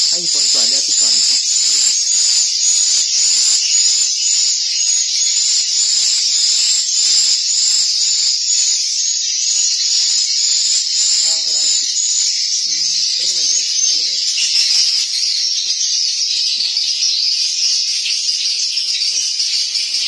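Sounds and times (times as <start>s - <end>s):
swiftlets twittering: 0.0s - 4.6s.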